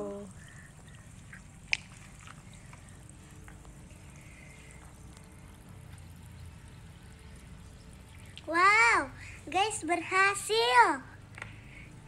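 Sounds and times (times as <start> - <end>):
hand moving in water: 0.0 - 4.8
low steady hum: 0.0 - 12.0.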